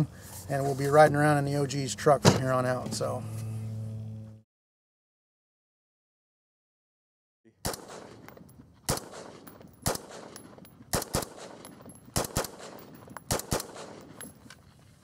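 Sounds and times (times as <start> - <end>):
rifle shots: 7.6 - 14.3.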